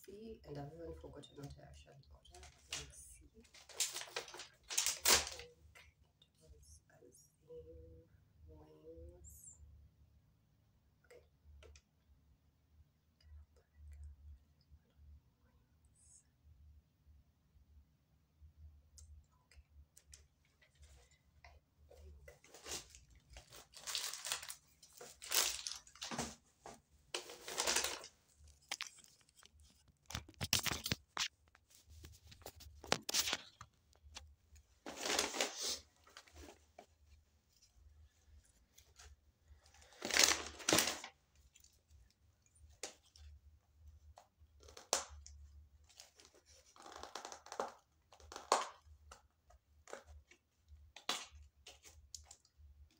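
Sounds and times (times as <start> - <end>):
paper rustling and crinkling: 2.3 - 5.5, 22.0 - 34.2, 34.8 - 36.9, 39.8 - 41.7.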